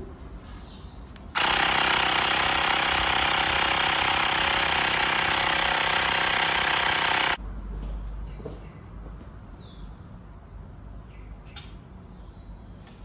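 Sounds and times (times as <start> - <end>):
small compressor pumping: 1.4 - 7.4.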